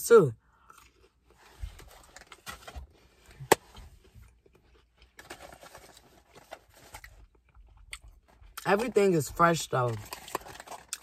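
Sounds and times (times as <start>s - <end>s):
packaging rustling: 5.2s - 7.2s, 9.9s - 11.0s.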